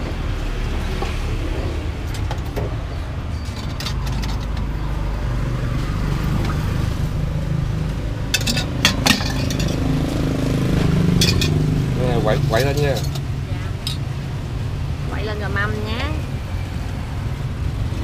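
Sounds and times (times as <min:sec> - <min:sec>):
road traffic hum: 0:00.0 - 0:18.0
metal ladle clinking on pots: 0:08.3 - 0:09.9, 0:11.2 - 0:11.6, 0:12.6 - 0:14.1.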